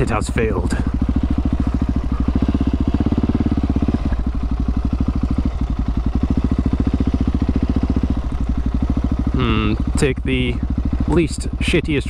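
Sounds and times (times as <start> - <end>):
motorcycle engine at low revs: 0.0 - 12.0.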